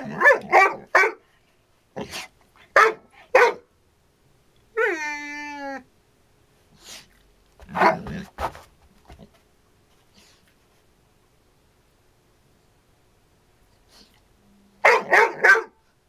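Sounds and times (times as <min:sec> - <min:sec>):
dog barking: 0:00.0 - 0:01.2, 0:02.7 - 0:03.7, 0:07.7 - 0:08.3, 0:14.8 - 0:15.8
dog howl-like cry: 0:04.8 - 0:05.9.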